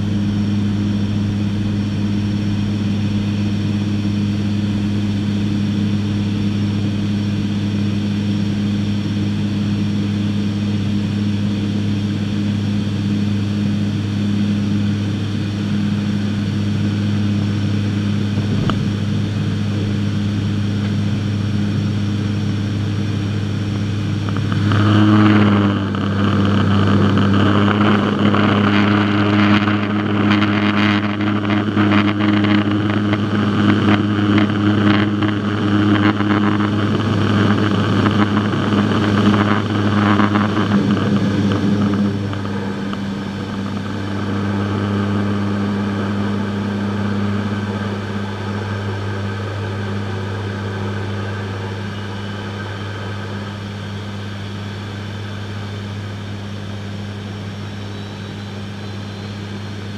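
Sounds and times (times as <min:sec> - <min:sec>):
propeller engines droning: 0:00.0 - 0:59.9.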